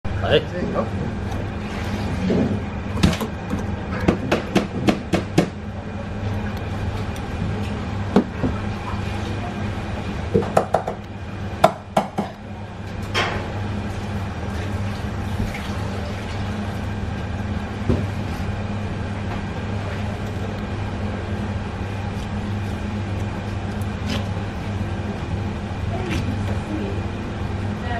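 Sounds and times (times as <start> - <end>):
steady low hum: 0.1 - 27.9.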